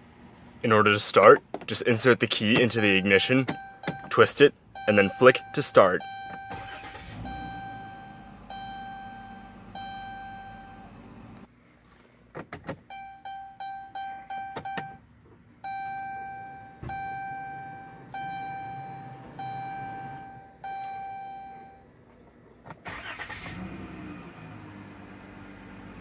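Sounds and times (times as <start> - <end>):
car engine cranking and idling: 0.0 - 11.5, 12.4 - 26.0
ignition clicks: 1.4 - 11.5, 12.4 - 15.0, 15.6 - 21.8, 22.6 - 23.8
dashboard warning chime: 2.4 - 11.0, 12.9 - 15.0, 15.6 - 21.8.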